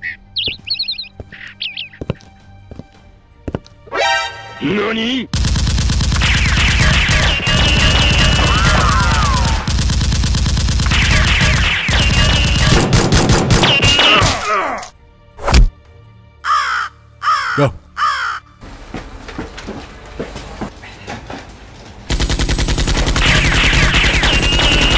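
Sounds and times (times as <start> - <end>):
rapid automatic gunfire: 5.4 - 13.8, 22.1 - 24.9
shrill cries: 8.3 - 9.7.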